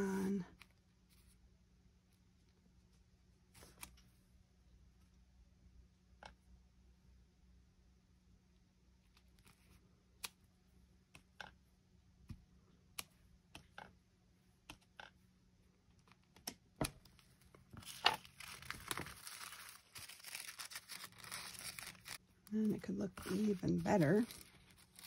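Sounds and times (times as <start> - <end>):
paper tearing: 17.9 - 22.2.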